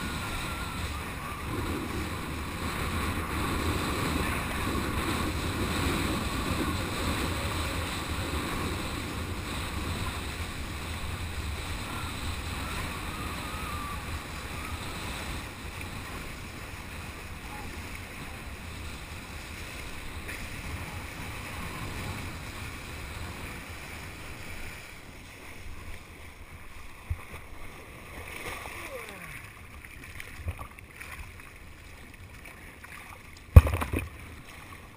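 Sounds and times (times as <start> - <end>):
wind buffeting microphone: 0.0 - 24.7
rushing water: 0.0 - 34.9.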